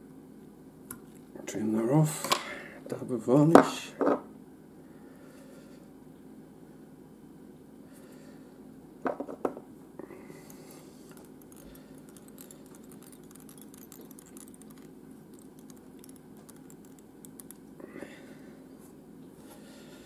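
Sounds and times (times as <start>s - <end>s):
faint brush ticks: 11.1s - 17.6s.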